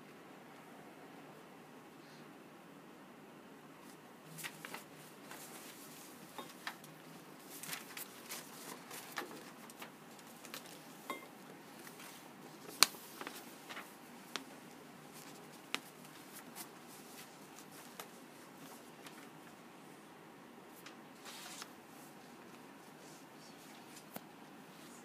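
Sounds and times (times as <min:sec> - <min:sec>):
paper rustling: 0:03.8 - 0:11.0, 0:11.7 - 0:19.4, 0:20.8 - 0:21.8.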